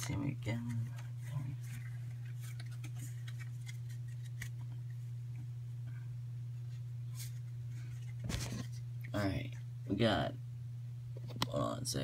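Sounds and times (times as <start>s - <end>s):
steady low hum: 0.0s - 12.0s
foil packet crinkling: 0.6s - 4.6s.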